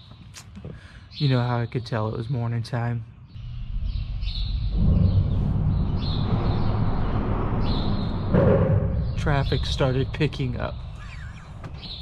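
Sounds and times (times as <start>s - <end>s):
small birds chirping: 0.0s - 12.0s
road traffic rumble: 3.4s - 12.0s.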